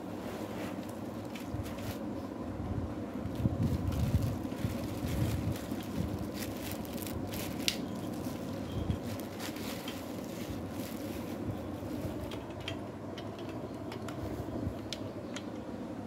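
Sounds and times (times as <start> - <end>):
plastic wrap crinkling: 0.7 - 2.1, 3.3 - 12.4.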